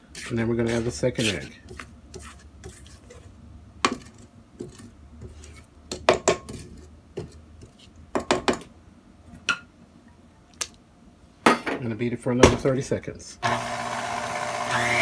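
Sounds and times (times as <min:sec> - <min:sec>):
spatula scraping mixer bowl: 0:00.0 - 0:05.7, 0:13.4 - 0:15.0.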